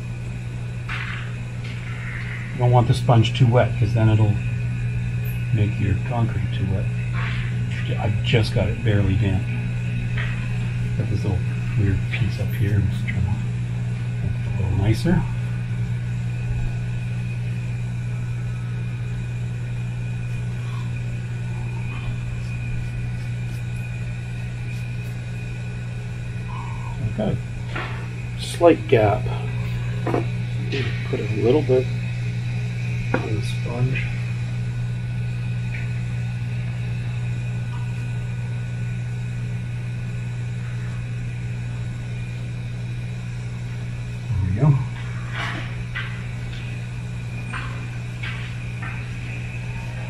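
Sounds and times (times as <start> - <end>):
faint high whine: 0.0 - 50.0
low machine hum: 0.0 - 50.0.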